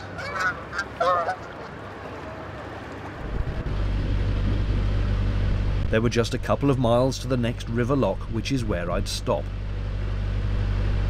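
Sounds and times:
geese honking: 0.0 - 1.9
low engine drone: 1.7 - 11.0.

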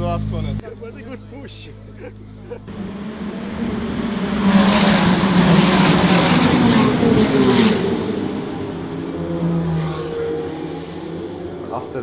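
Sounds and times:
race cars accelerating past: 2.7 - 12.0.

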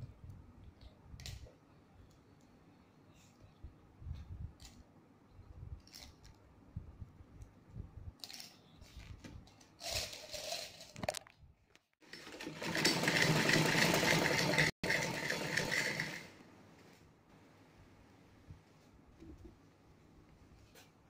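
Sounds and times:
sewing machine stitching: 12.0 - 16.3.

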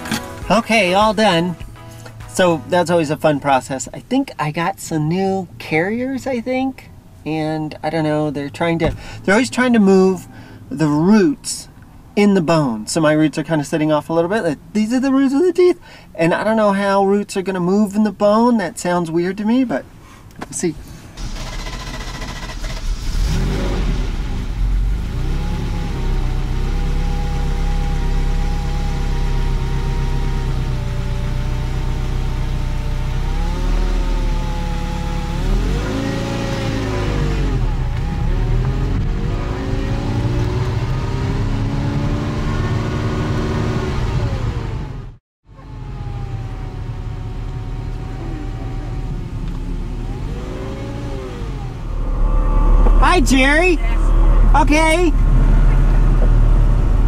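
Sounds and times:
sports car engine accelerating: 21.2 - 57.0.

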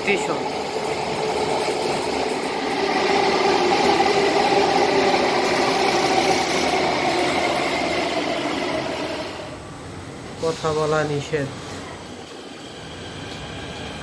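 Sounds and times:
train running rumble: 0.0 - 10.3
train motor whine: 0.3 - 9.6.

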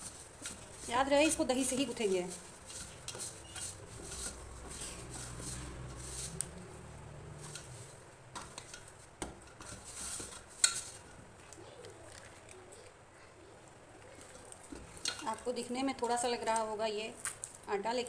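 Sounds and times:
hands kneading dough: 0.0 - 13.0.

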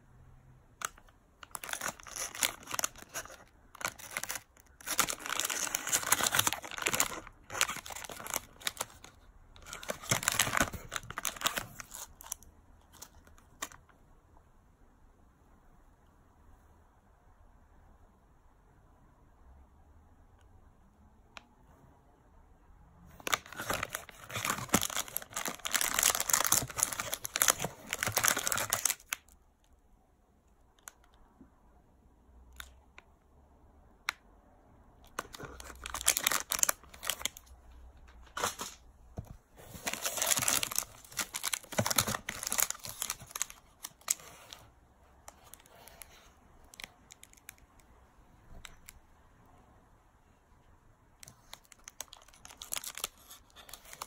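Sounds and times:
plastic wrappers crinkling: 0.8 - 12.4, 23.2 - 29.3, 35.0 - 37.5, 38.2 - 44.6, 51.3 - 54.0.

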